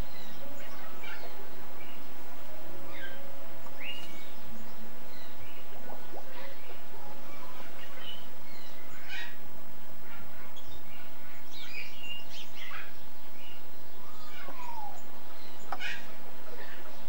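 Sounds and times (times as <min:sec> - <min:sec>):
birds chirping: 0:00.0 - 0:17.0
outdoor background hiss: 0:00.0 - 0:17.0.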